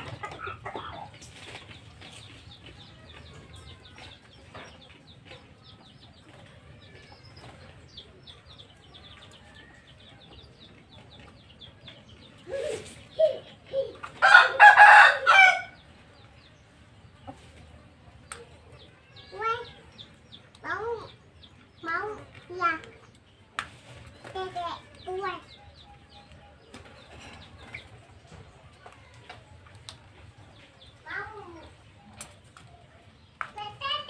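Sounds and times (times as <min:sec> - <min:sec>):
hen clucking: 0:00.0 - 0:04.8
rooster crowing: 0:14.2 - 0:15.8.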